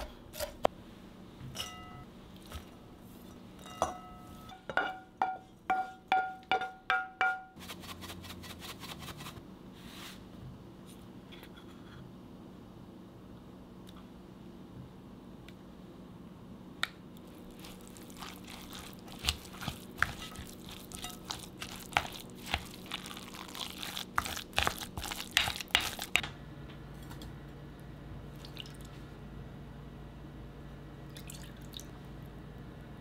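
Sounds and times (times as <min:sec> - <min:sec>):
low steady hum: 0:00.0 - 0:33.0
kitchen clicks and clinks: 0:03.6 - 0:07.4.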